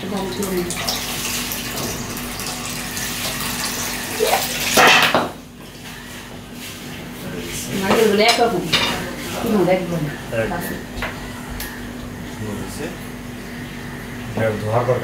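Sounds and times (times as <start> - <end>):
water pouring into metal bowl: 0.0 - 4.8
water gushing: 0.0 - 5.0.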